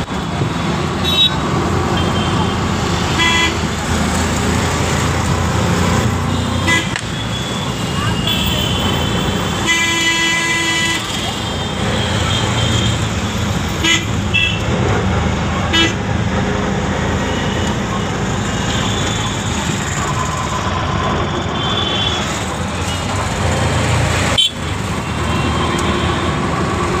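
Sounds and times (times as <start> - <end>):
vehicle horn toots: 3.2 - 3.6, 6.3 - 11.2.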